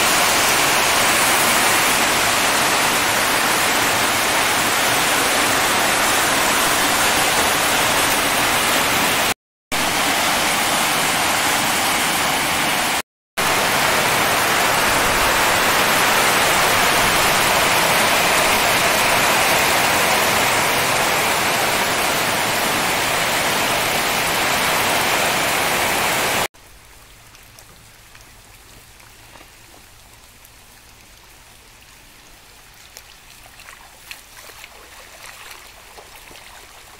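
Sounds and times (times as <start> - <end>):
heavy rain pouring: 0.0 - 32.3
rainwater running: 0.0 - 36.9.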